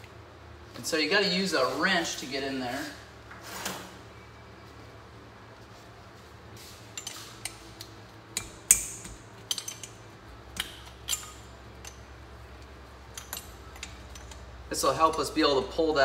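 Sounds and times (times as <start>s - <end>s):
wrench clinking on metal: 7.0s - 15.4s.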